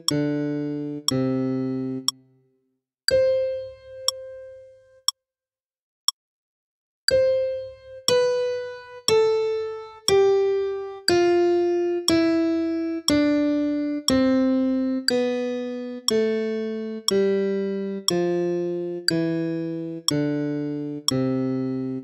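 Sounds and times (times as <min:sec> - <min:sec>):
metronome clicks: 0:00.0 - 0:01.4, 0:02.0 - 0:02.2, 0:03.1 - 0:04.4, 0:07.1 - 0:07.5, 0:08.1 - 0:11.4, 0:12.1 - 0:12.5, 0:13.1 - 0:21.6
piano scale: 0:00.0 - 0:02.1, 0:03.1 - 0:04.9, 0:07.1 - 0:22.0.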